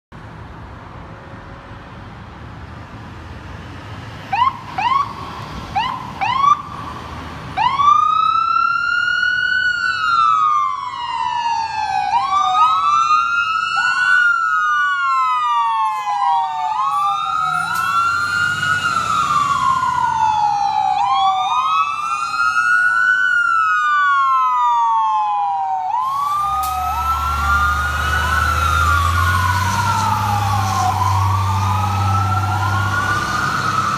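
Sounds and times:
fire truck sirens wailing: 4.2s - 33.9s
siren yelps: 5.8s - 6.8s, 7.6s - 33.9s
truck engine rumbling: 9.1s - 24.9s, 25.6s - 33.9s.

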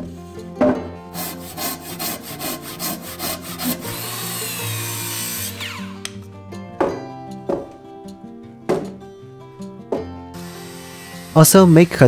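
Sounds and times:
hand saw cutting wood: 1.1s - 6.2s, 10.4s - 12.0s
circular saw cutting: 1.2s - 6.2s, 10.4s - 12.0s.

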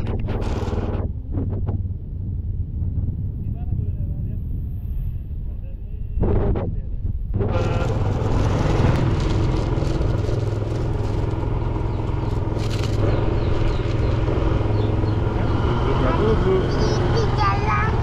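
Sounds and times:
road noise: 0.0s - 18.0s
motorbike engine running: 7.4s - 18.0s.

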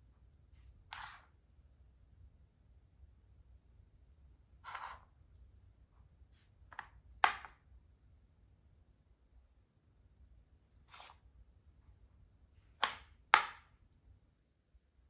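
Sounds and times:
chess piece swish: 0.9s - 1.3s
chess piece tap and click: 6.7s - 7.6s, 12.8s - 13.7s.

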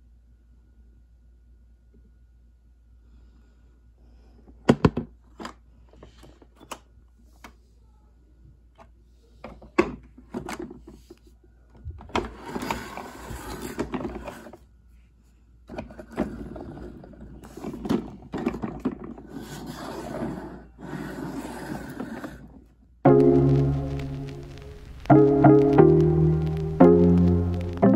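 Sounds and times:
toy truck wheels rolling on wood: 15.7s - 22.6s.

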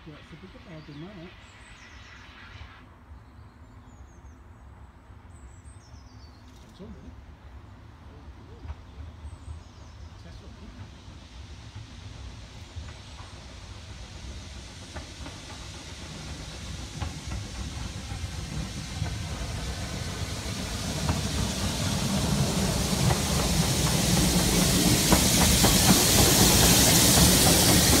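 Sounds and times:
loud hiss of steam: 0.0s - 3.1s, 8.2s - 28.0s
steam locomotive passing: 0.0s - 3.2s, 6.4s - 28.0s.

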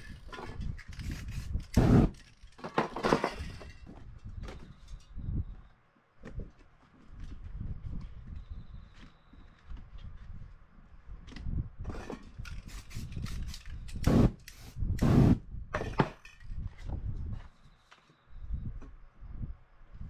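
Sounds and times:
spray paint can hissing: 1.0s - 2.2s, 12.6s - 15.4s.

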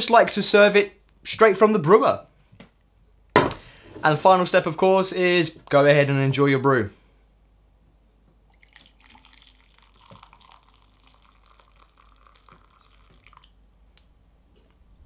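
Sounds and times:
coffee trickling into mug: 8.5s - 13.6s.

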